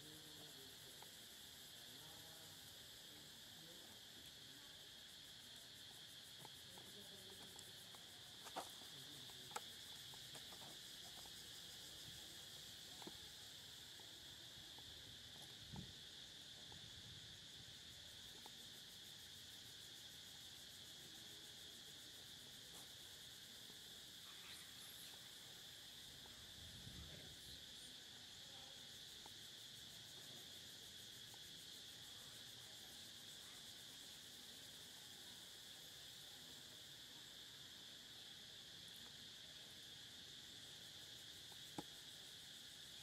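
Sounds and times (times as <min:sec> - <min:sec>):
insect chorus drone: 0:00.0 - 0:43.0.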